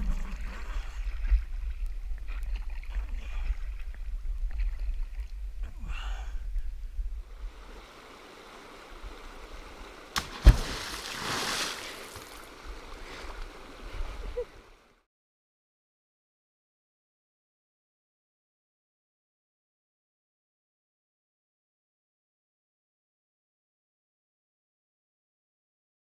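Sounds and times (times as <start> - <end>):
creek water rumbling: 0.0 - 6.3, 7.0 - 15.0
stone splashing into water: 10.1 - 12.5.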